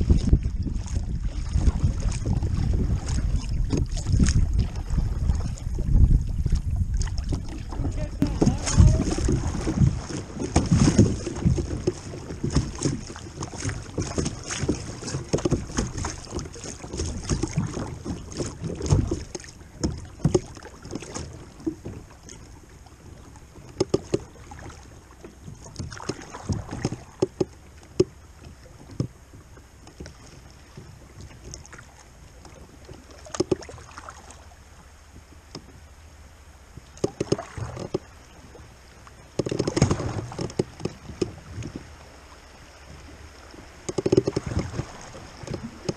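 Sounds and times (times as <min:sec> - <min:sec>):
wind on microphone: 0:00.0 - 0:24.8, 0:39.4 - 0:45.9
knocks against hull: 0:00.0 - 0:34.2, 0:36.9 - 0:38.1, 0:39.3 - 0:41.9, 0:43.6 - 0:45.9
water rushing against kayak hull: 0:00.0 - 0:45.9.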